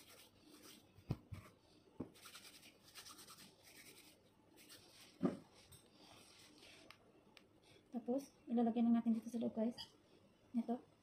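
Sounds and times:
hands rubbing paste: 0.0 - 5.2.

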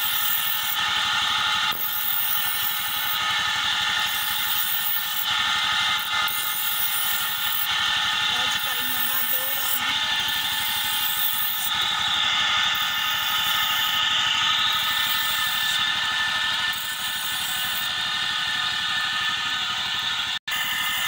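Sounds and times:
knife grinding on wheel: 0.0 - 21.0
motorcycle engine running: 0.4 - 21.0.

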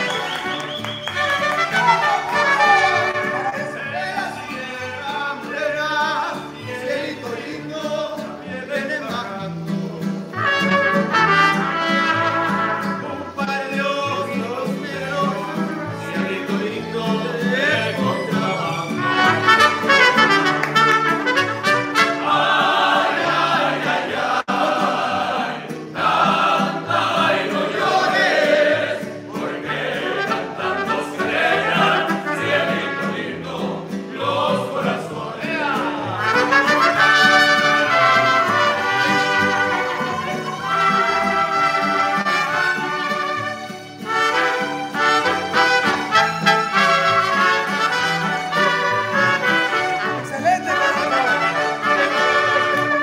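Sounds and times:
trumpets: 0.0 - 4.5, 10.3 - 13.4, 18.9 - 23.5, 29.6 - 33.5, 36.0 - 53.0
violins: 0.0 - 5.1, 15.3 - 23.9, 35.9 - 53.0
guitars: 0.0 - 53.0
voices singing: 1.8 - 20.2, 21.3 - 43.0.

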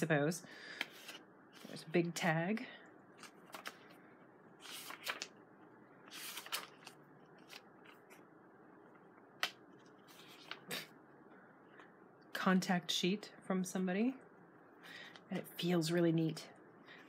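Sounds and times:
paper rustling and flicking: 3.2 - 4.0, 4.6 - 5.3, 6.1 - 8.2.

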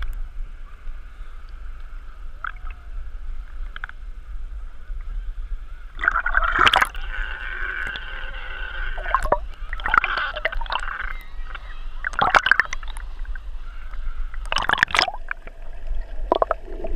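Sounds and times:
water splashes: 2.2 - 4.0, 5.9 - 16.9
seawater sloshing and gurgling: 5.9 - 16.9.

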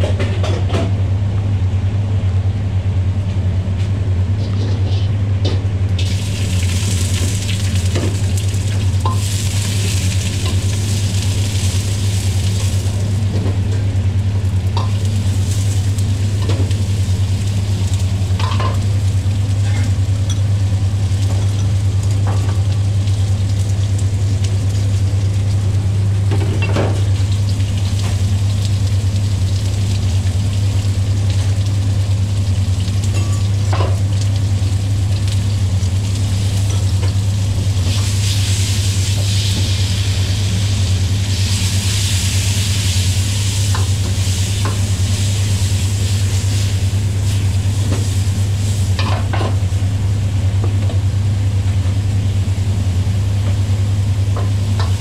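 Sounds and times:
food sizzling in a wok: 6.0 - 13.3, 14.8 - 25.7, 26.9 - 49.8.

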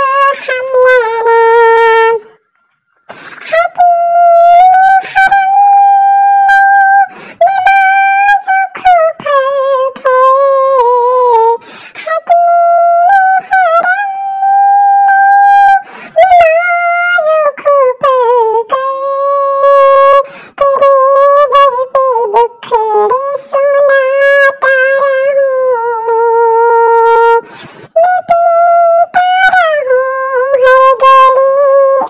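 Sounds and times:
high voice singing unaccompanied: 0.0 - 32.0
breathy consonant sounds: 2.2 - 3.8, 7.0 - 7.5, 11.5 - 12.3, 15.2 - 16.3, 20.2 - 20.6, 26.9 - 28.0.

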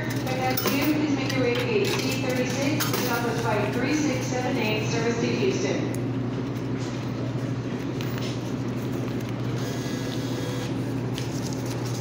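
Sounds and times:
steady low hum: 0.0 - 12.0
vending machine feed motor: 9.4 - 11.4.

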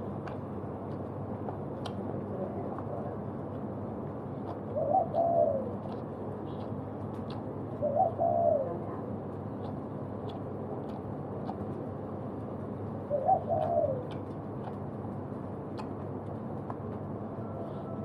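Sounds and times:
bird calling: 4.4 - 8.9, 13.0 - 14.3.

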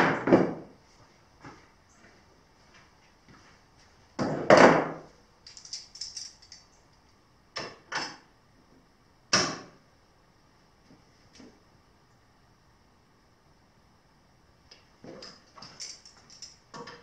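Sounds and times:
tools knocking on wooden workbench: 0.0 - 0.7, 4.2 - 5.0.

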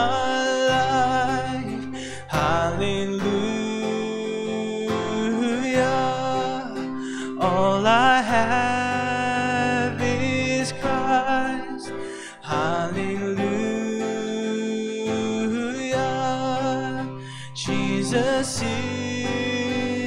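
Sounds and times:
man singing: 0.0 - 20.0
strummed acoustic guitar: 0.0 - 20.0.

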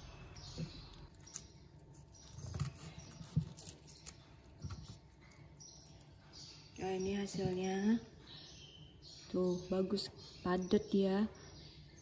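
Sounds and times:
leaf casing crackling: 0.8 - 8.1.

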